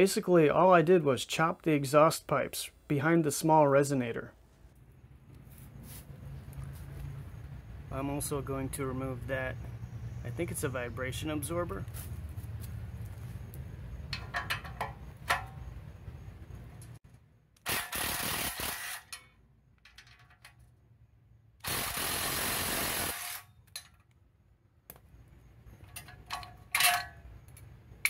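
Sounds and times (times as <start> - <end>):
cordless drill spinning nuts: 17.7 - 19.1, 21.6 - 23.4
metal clinks: 25.8 - 27.6.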